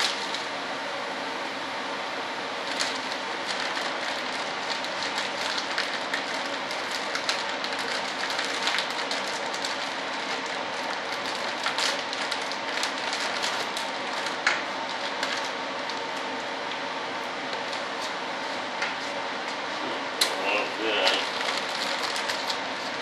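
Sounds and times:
plastic film crackling: 2.6 - 16.1, 21.0 - 23.0.

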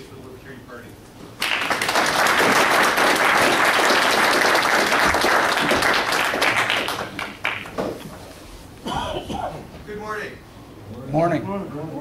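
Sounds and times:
audience applauding: 1.4 - 7.9.

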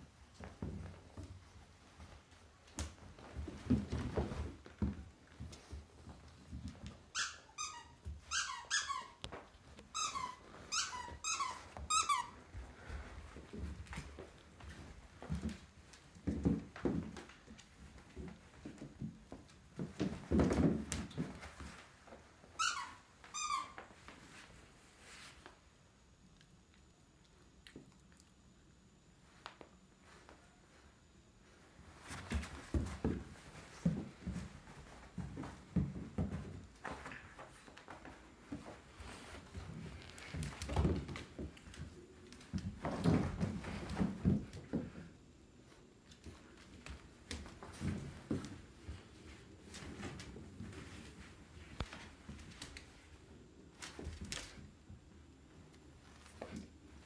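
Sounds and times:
puppy scuffling on wooden floor: 0.1 - 25.6, 31.6 - 57.0
puppy whining: 7.1 - 9.3, 9.9 - 12.4.

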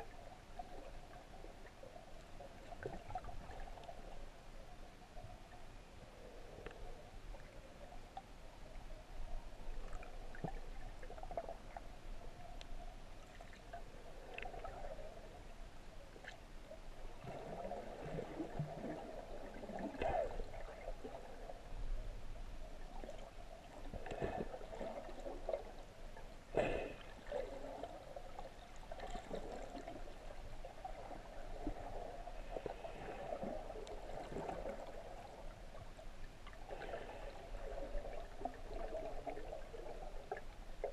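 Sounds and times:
muffled underwater gurgling: 17.2 - 22.2.

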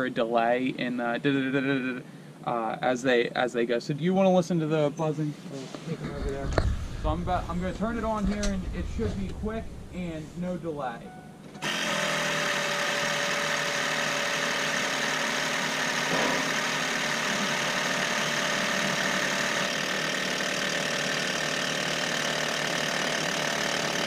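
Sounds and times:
fuel injectors buzzing: 11.6 - 24.0.

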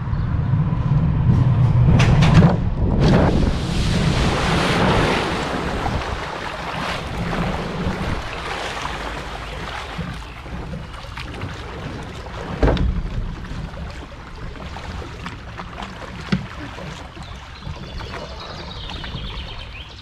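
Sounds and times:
boat rumbling down metal chute: 0.0 - 20.0
water rushing around hull: 0.0 - 20.0
wind on microphone: 0.0 - 20.0
boat splashing into pool: 2.0 - 20.0.

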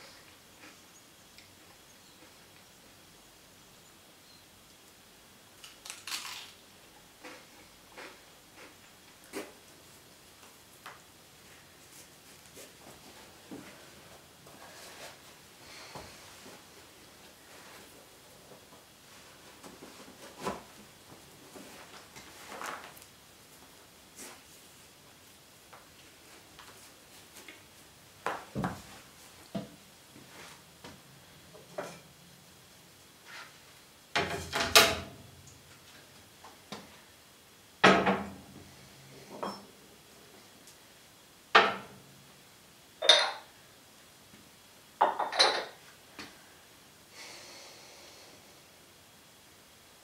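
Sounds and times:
metal utensils clinking: 45.2 - 45.8.

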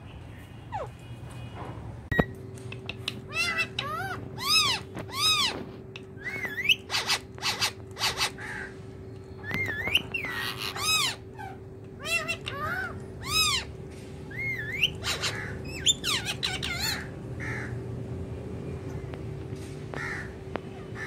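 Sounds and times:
parrot calling: 2.8 - 8.8, 9.4 - 17.7
parrot squawks: 3.2 - 5.6, 6.2 - 8.7, 9.4 - 13.7, 14.3 - 17.1.

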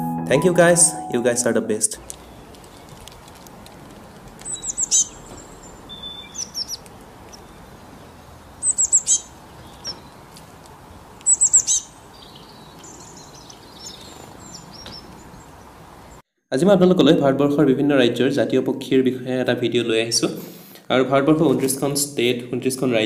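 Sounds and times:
songbirds chirping: 0.4 - 16.2.

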